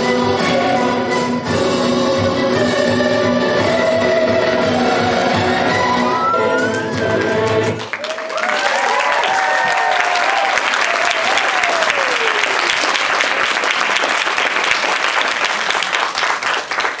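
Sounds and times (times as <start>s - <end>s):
audience applauding and cheering: 5.6s - 17.0s
voices whooping: 8.0s - 12.6s.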